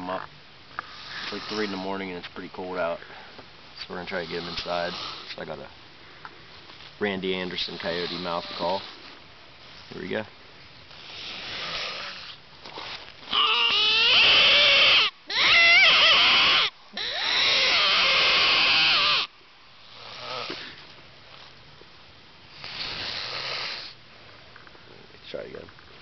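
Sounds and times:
coyote call yipping howls: 13.3s - 19.3s.

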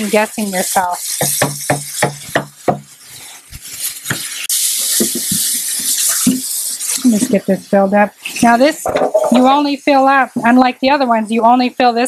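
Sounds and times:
tap water filling jug: 5.0s - 6.5s
plastic jug knocking: 8.8s - 9.5s.

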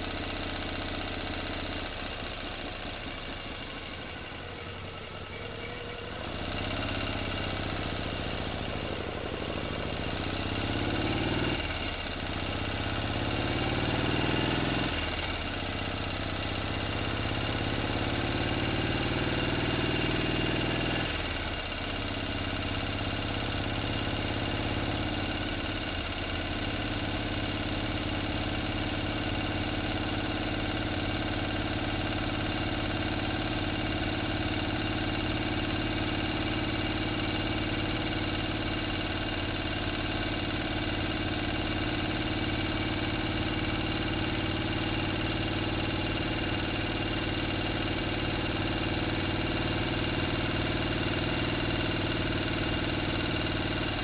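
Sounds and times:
motor engine revving: 4.0s - 15.6s.

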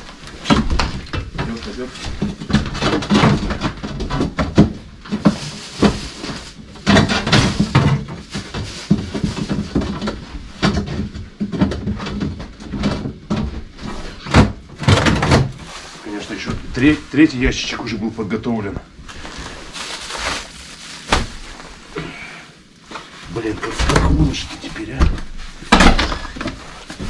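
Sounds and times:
rustling packaging: 0.0s - 11.2s, 14.8s - 27.0s
boxes clattering: 0.0s - 21.9s, 22.9s - 27.0s.

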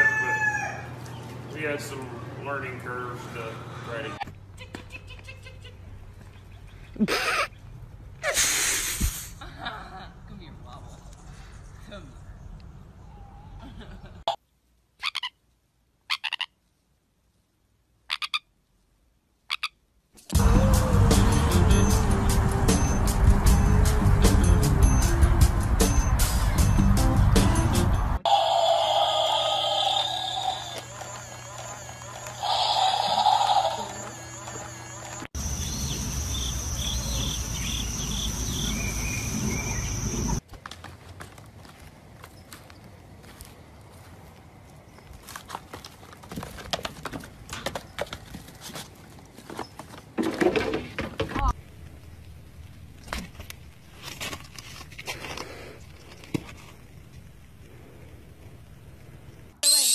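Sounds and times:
parrot chirping: 28.2s - 40.4s, 59.6s - 59.9s
crickets trilling: 28.3s - 40.4s
short chirps: 59.6s - 59.9s.

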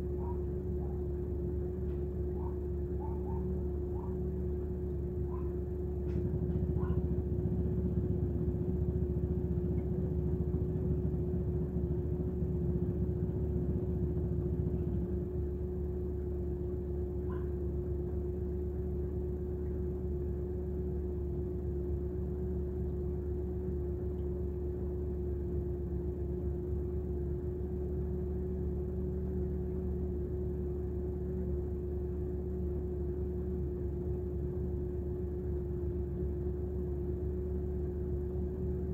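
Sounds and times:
engine idling with whine: 0.0s - 38.9s.

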